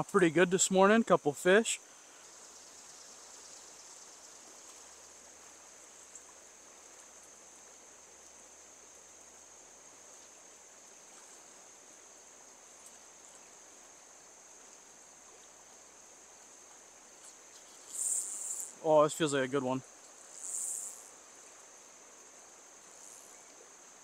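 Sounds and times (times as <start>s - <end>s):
stream running water: 0.0s - 24.0s
high-pitched insect drone: 17.7s - 18.8s, 20.2s - 21.2s.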